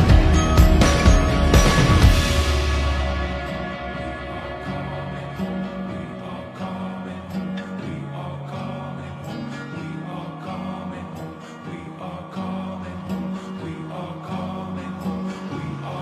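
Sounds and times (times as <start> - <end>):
held low notes: 0.0 - 7.4
plucked guitar: 0.0 - 16.0.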